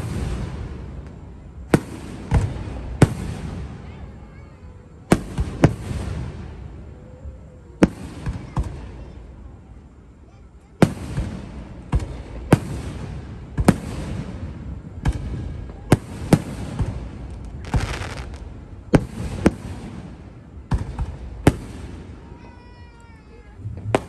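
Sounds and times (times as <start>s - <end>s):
firework shells bursting: 16.4s - 20.0s.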